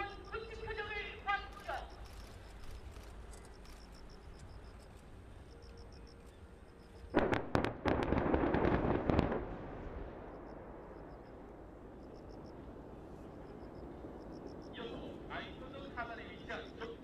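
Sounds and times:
dense crackle of detonations: 7.1 - 17.0
distant explosions: 7.1 - 17.0.

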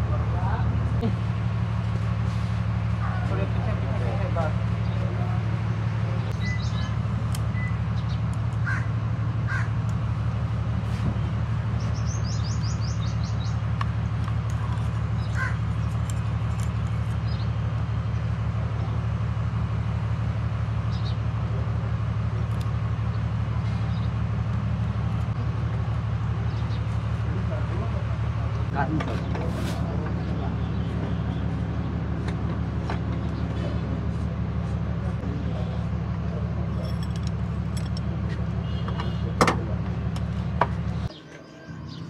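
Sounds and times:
crows cawing: 8.6 - 9.8, 15.2 - 15.7.

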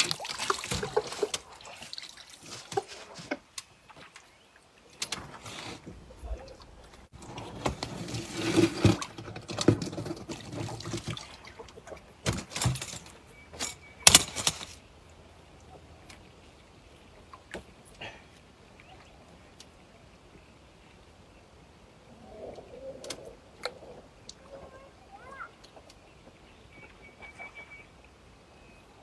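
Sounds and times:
water splashing and dripping: 0.0 - 21.2
rustling: 5.0 - 11.6.

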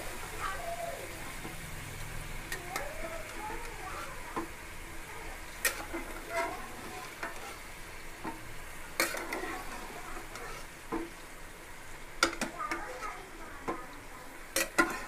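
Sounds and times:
chicken frying in a pot: 0.0 - 15.0
ladle knocking and scraping pan: 5.6 - 7.6, 8.2 - 11.2, 12.2 - 12.8, 14.6 - 15.0.

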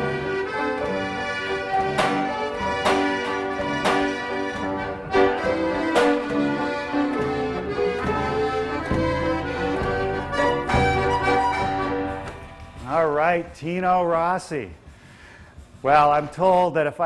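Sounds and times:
accordion chords: 0.0 - 14.8
drum beat: 1.8 - 6.4, 8.1 - 13.6.

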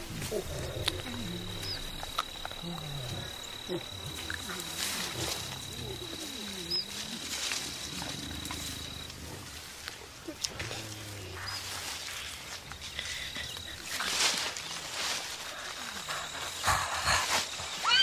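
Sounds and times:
gorillas rumbling grunts: 0.0 - 9.6, 15.3 - 18.0.

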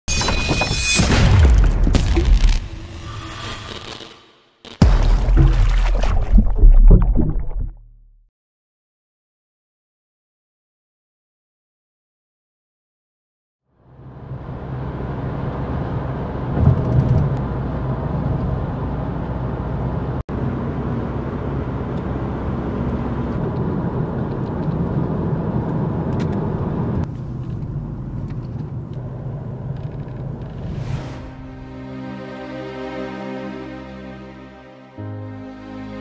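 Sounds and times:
car engine rumble in cabin: 13.9 - 30.6
tyre road noise: 13.9 - 31.8.

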